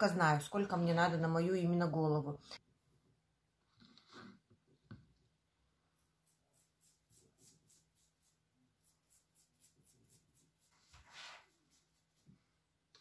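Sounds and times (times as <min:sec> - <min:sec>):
brush strokes in hair: 0:06.2 - 0:12.4.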